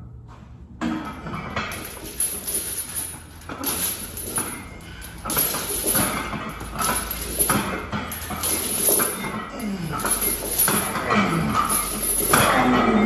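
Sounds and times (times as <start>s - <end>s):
metallic clinks of barbell plates: 0.9s - 13.0s
man breathing hard and grunting: 9.3s - 13.0s.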